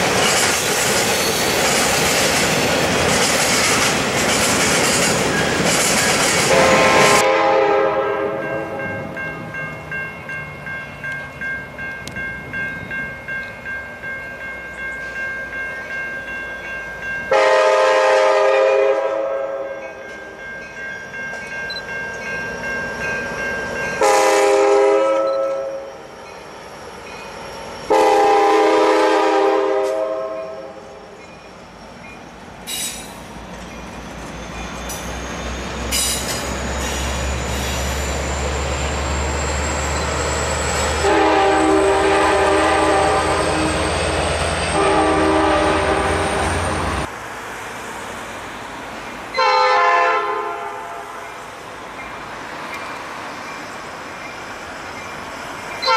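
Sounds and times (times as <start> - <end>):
locomotive horn chords: 6.5 - 9.1, 17.3 - 20.0, 24.0 - 25.9, 27.9 - 31.0, 41.0 - 43.9, 44.7 - 47.0, 49.4 - 51.2.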